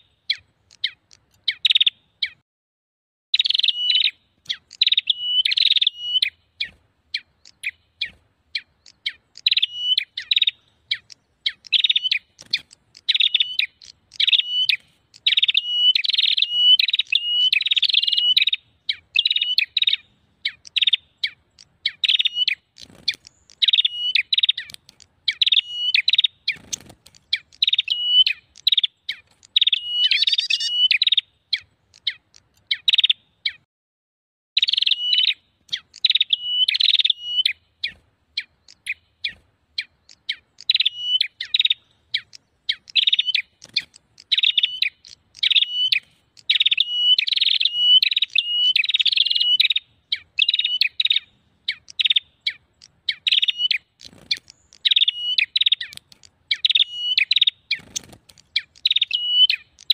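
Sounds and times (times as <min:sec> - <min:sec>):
warblers chattering calls: 0:03.4 - 0:33.1, 0:34.6 - 0:59.9.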